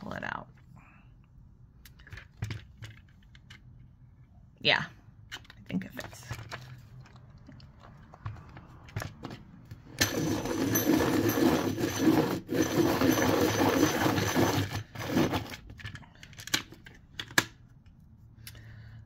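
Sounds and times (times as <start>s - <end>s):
pencil sharpener grinding whir: 10.0s - 15.7s.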